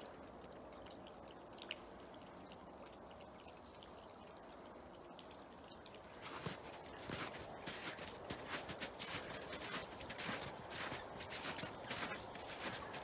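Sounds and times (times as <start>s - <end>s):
water drips: 0.0s - 13.0s
water trickling: 0.0s - 13.0s
footsteps: 6.2s - 13.0s.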